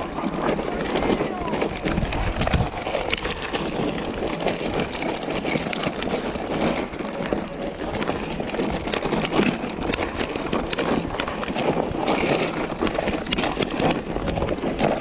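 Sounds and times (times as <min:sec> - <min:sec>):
bike tyres crunching over stones: 0:00.0 - 0:15.0
clicks and rattles: 0:00.0 - 0:15.0
wind rumble on microphone: 0:00.0 - 0:15.0.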